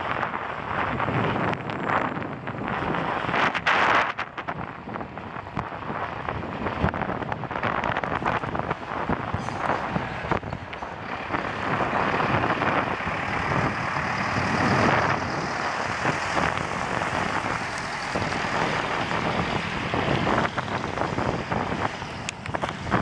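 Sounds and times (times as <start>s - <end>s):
wind on microphone: 0.0s - 23.0s
truck passing: 7.6s - 23.0s.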